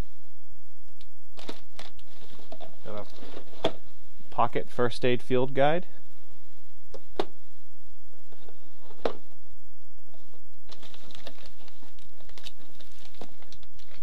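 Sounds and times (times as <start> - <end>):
packaging rustling: 1.4 - 3.8, 10.6 - 14.0.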